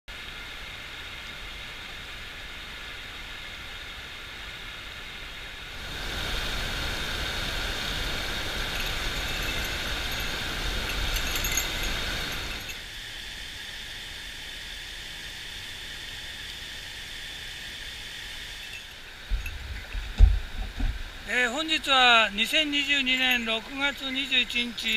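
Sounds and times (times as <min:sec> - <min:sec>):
river water rushing over stones: 0:00.2 - 0:12.9, 0:18.5 - 0:24.9.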